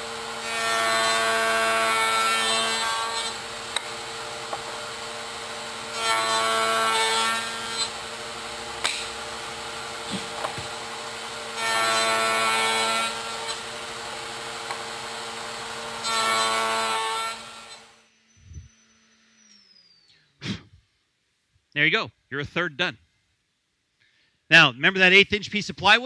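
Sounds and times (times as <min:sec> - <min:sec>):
router motor running: 0:00.0 - 0:20.0
router cutting wood: 0:00.0 - 0:20.1
motor winding down: 0:17.6 - 0:20.1.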